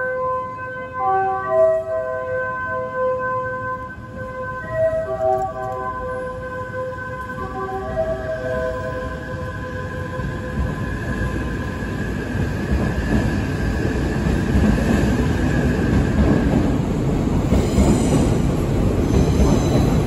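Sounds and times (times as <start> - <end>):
electric train rumbling past: 0.0 - 20.0.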